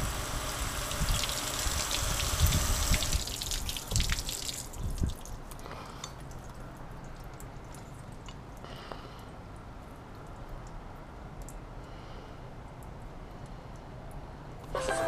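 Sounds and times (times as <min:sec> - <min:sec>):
water dripping and splattering: 0:00.0 - 0:08.6.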